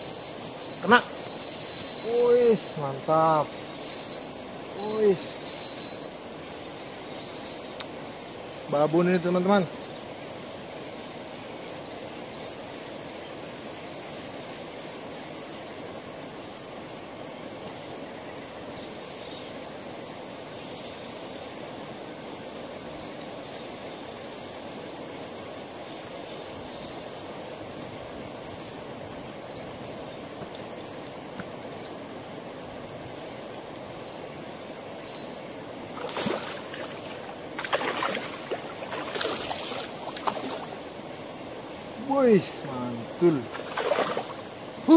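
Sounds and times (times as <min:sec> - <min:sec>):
insects droning: 0:00.0 - 0:44.9
river ambience: 0:00.0 - 0:44.9
fish splashing at surface: 0:36.0 - 0:40.8, 0:43.5 - 0:44.4.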